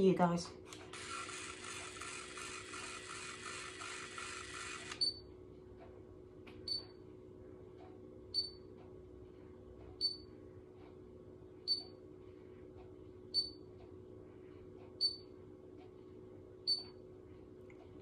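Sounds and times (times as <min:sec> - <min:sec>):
faint steady hum: 0:00.0 - 0:18.0
hair curler beeping: 0:01.0 - 0:05.2.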